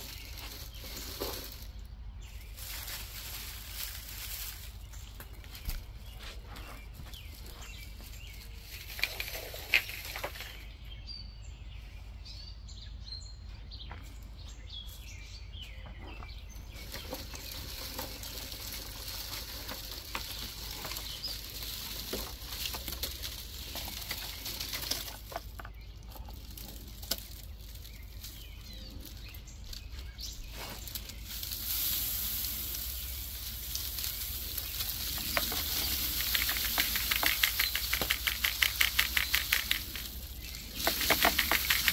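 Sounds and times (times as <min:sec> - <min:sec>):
seed heads being shaken: 0:00.0 - 0:05.8, 0:16.7 - 0:41.9
seeds pattering into plastic tub: 0:00.0 - 0:10.7, 0:16.7 - 0:41.9
dry stalks rustling and crackling: 0:00.0 - 0:10.9, 0:13.8 - 0:41.9.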